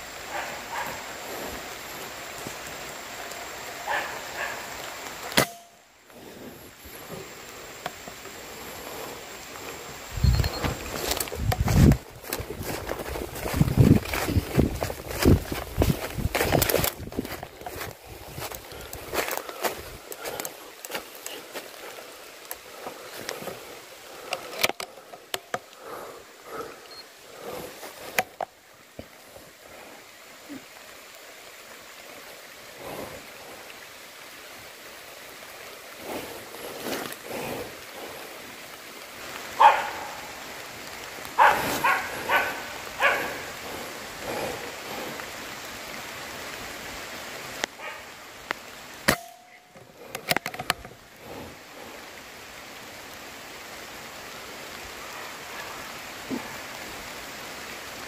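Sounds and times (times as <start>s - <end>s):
footsteps through leaf litter: 10.6s - 21.8s.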